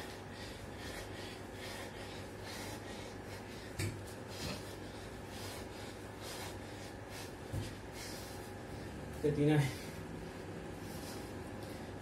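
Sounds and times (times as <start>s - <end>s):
man breathing hard: 0.0s - 9.0s.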